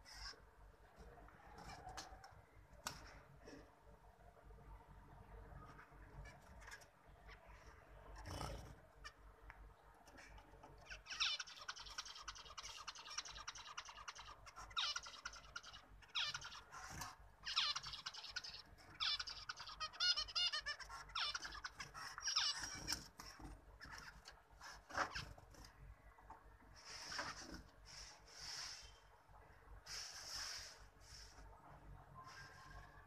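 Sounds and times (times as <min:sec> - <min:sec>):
finches singing: 0:10.2 - 0:24.2.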